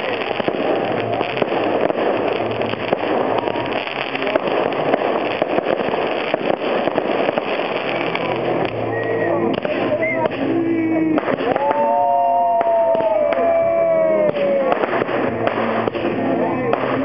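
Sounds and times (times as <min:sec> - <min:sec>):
fireworks launching and bursting: 0:00.0 - 0:17.0.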